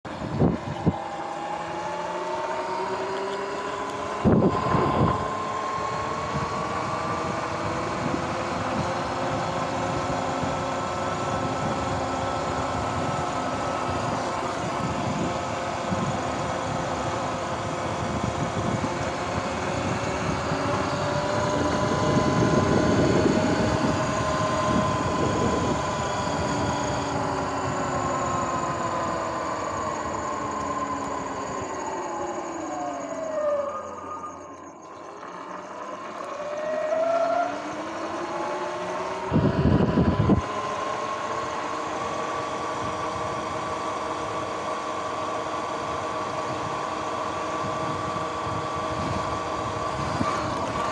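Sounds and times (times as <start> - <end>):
road and wind noise: 0.0 - 50.9
electric motor whine: 0.1 - 50.9.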